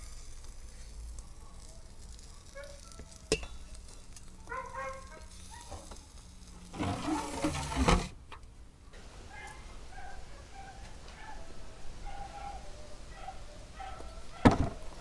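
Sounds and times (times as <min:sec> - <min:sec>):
metal lid scraping and clattering: 0:06.7 - 0:08.1.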